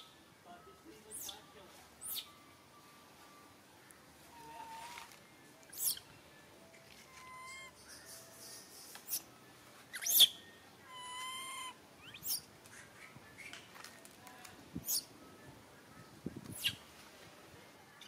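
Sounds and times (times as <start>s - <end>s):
macaque high-pitched cries: 5.7s - 6.0s, 7.1s - 7.9s, 9.9s - 12.4s
macaque whistle-like coo: 7.1s - 9.3s, 9.9s - 12.4s.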